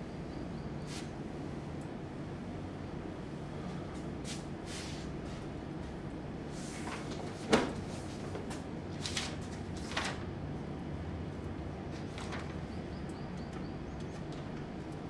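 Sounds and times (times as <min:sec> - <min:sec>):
paper rustling: 0:06.7 - 0:10.3, 0:12.0 - 0:12.7.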